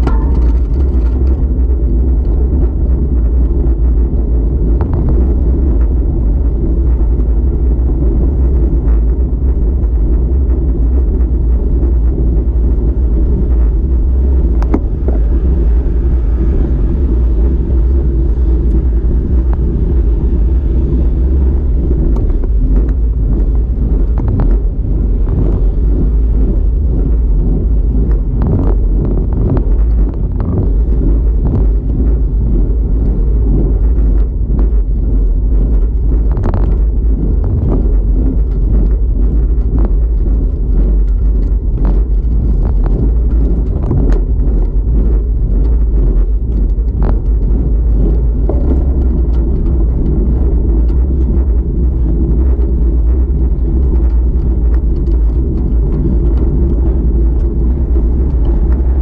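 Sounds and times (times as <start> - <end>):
bike tyres rumbling on asphalt: 0.0 - 59.0
wind buffeting microphone: 0.0 - 59.0.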